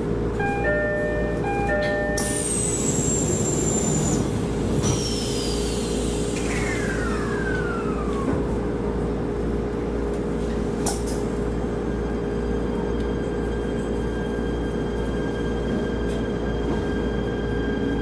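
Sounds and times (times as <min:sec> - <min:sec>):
train rumble and hum: 0:00.0 - 0:18.0
motor inverter whine: 0:00.3 - 0:08.8.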